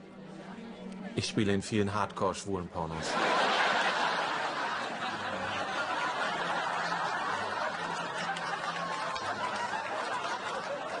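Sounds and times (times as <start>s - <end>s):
studio audience laughing: 3.0s - 11.0s.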